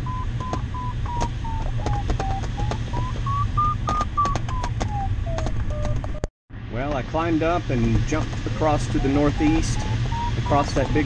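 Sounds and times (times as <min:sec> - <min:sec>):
variometer beeping: 0:00.0 - 0:06.3, 0:08.5 - 0:11.0.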